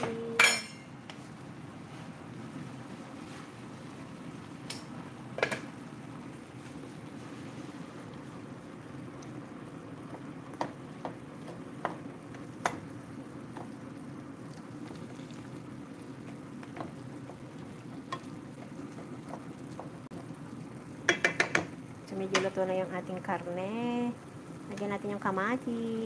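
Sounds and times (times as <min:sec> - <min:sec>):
wooden spatula knocking pan: 0:21.1 - 0:22.5.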